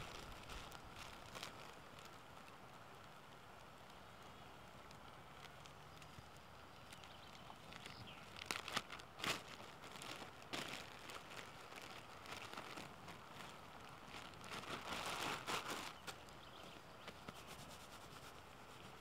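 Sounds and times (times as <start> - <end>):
plastic bag crinkling: 0.0 - 2.7, 6.8 - 16.8.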